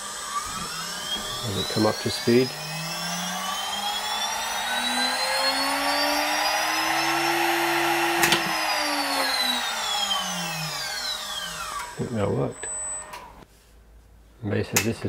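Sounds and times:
router spindle whining: 0.0 - 13.4.

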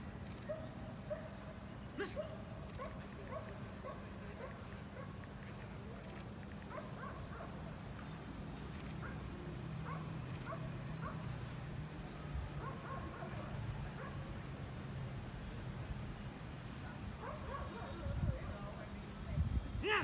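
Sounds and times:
dog yips and barks: 12.6 - 14.2, 17.2 - 17.9.

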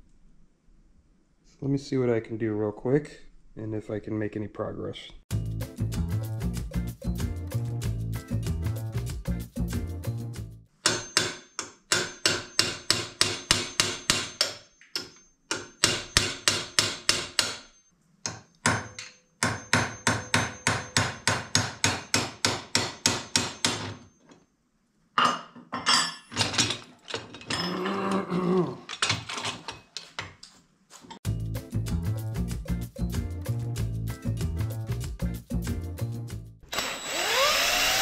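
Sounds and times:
hammer striking metal punch: 10.8 - 24.1
irregular metal clatter: 25.8 - 28.0, 28.8 - 31.2.

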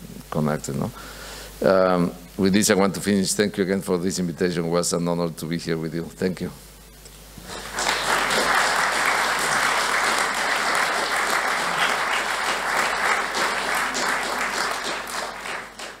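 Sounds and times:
audience applauding: 7.4 - 16.0.

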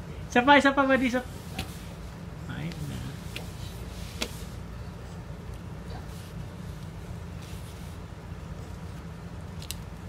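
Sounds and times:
low background hum: 0.0 - 10.0
faint soft rustles: 5.9 - 9.1.

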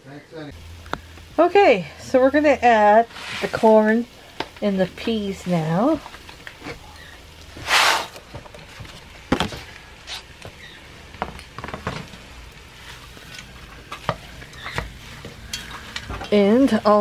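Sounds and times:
short rush of noise: 7.6 - 8.2.

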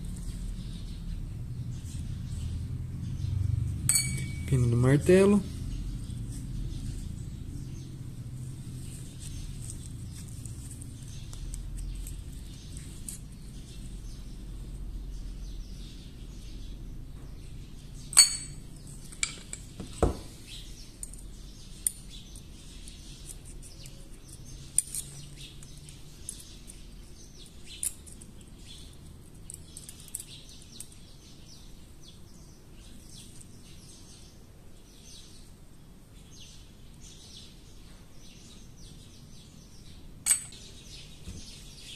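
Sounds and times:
small metal parts clinking: 29.2 - 31.0, 40.2 - 40.6.

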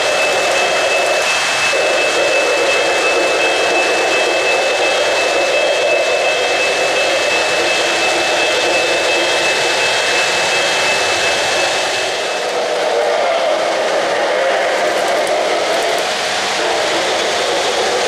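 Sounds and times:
model train whirring rumble: 0.0 - 18.0
thin steady whine: 0.0 - 18.0.

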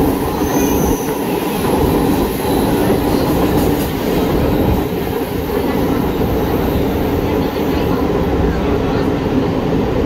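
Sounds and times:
train wheels rumbling on rails: 0.0 - 10.0.

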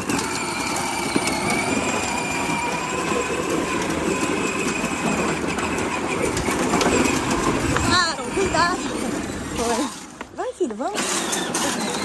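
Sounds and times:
toy tractor motor whine: 0.0 - 10.1, 10.9 - 12.0
wheels rumbling on paving stones: 0.0 - 12.0.

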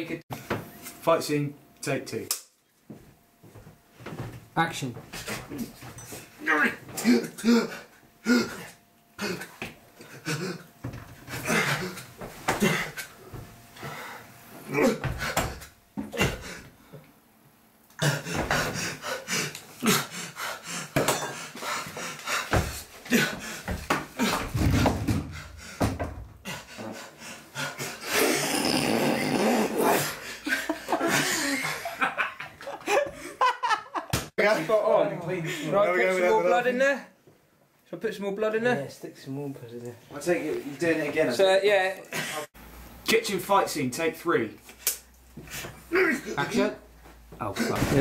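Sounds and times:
men grunting and gasping: 6.9 - 17.0, 17.9 - 32.2, 32.8 - 33.5, 45.4 - 46.5
breathy laughter: 11.3 - 13.1, 27.6 - 34.1.

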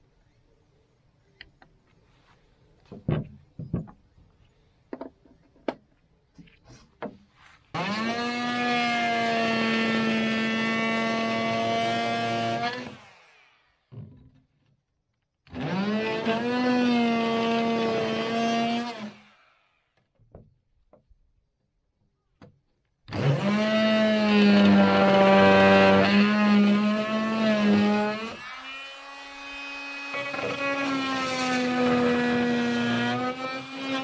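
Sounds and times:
oscillating multi-tool cutting plywood: 7.7 - 14.3, 15.5 - 20.0, 23.1 - 34.0.

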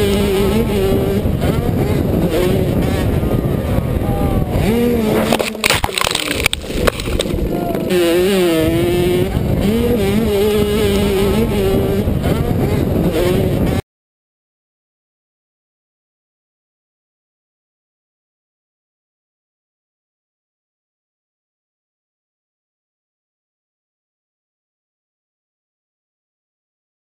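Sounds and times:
dirt bike engine revving: 0.0 - 13.8
wind buffeting microphone: 0.0 - 13.8.

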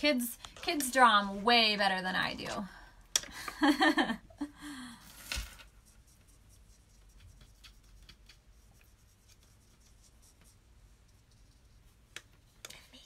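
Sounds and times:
paintbrushes dabbing on cardstock: 5.7 - 13.0.

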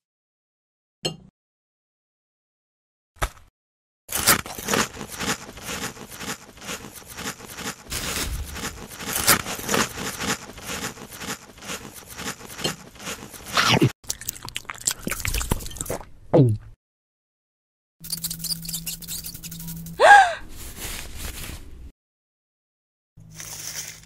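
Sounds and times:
crunchy food being chewed: 4.1 - 16.0, 23.3 - 24.0.

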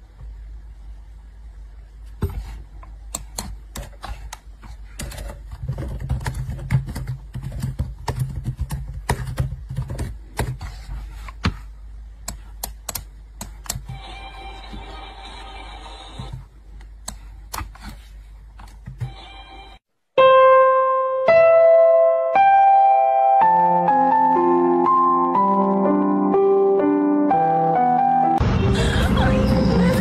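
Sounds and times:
low steady hum: 0.0 - 19.8
laptop keyboard typing: 3.2 - 10.6.

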